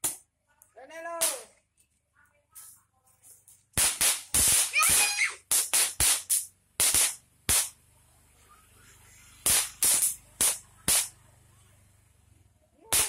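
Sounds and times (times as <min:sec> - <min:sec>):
firecrackers banging: 0:01.2 - 0:01.6, 0:03.7 - 0:07.8, 0:09.3 - 0:11.2.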